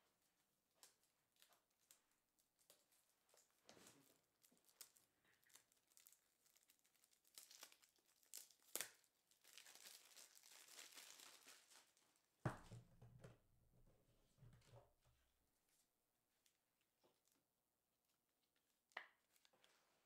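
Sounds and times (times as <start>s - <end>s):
wrapping crinkling and tearing: 0.7s - 12.2s.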